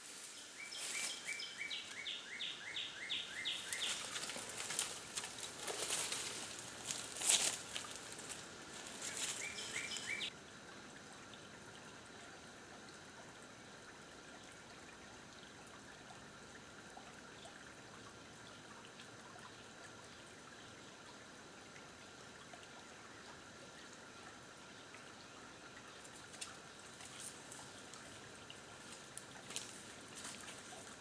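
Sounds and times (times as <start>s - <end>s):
rustling through undergrowth: 0.0s - 2.0s, 3.4s - 10.3s, 28.8s - 31.0s
creek trickling: 0.0s - 31.0s
outdoor hush: 0.0s - 31.0s.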